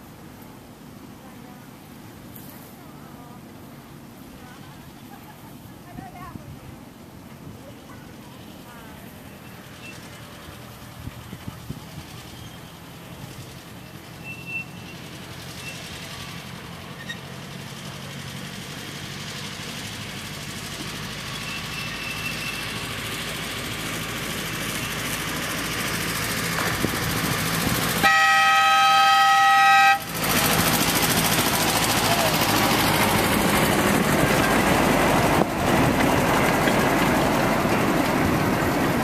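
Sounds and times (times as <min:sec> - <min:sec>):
miniature train running: 0:07.2 - 0:39.0
train horn blast: 0:28.0 - 0:30.1.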